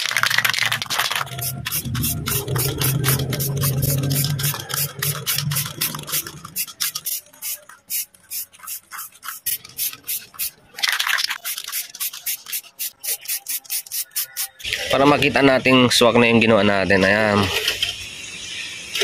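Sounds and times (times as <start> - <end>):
spray can ball rattling: 0.0 - 15.0
low hum: 0.8 - 6.6
spray hiss: 17.8 - 19.0.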